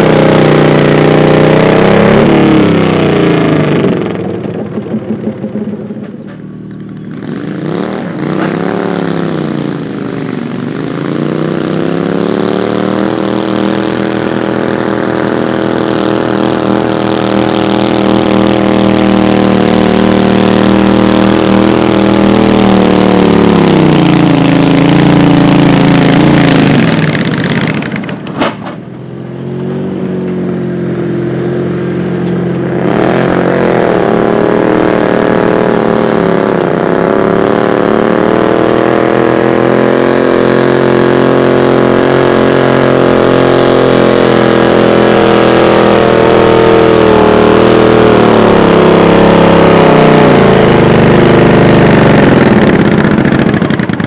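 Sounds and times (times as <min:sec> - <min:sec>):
engine revving: 0:00.0 - 0:54.0
tractor engine running hard: 0:00.0 - 0:54.0.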